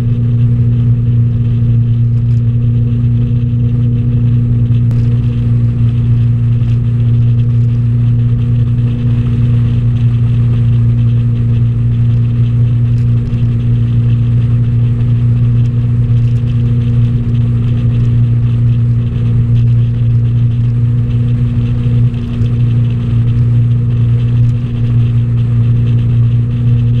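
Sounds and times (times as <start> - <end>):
boat engine drone: 0.0 - 27.0
constant rushing noise: 0.0 - 27.0.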